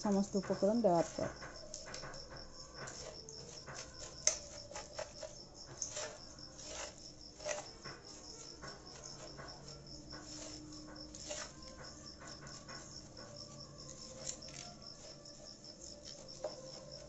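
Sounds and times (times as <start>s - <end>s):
cricket chirping: 0.0s - 17.0s
metal spoon scraping a steel pot: 0.0s - 17.0s
puffed rice rustling: 0.0s - 17.0s.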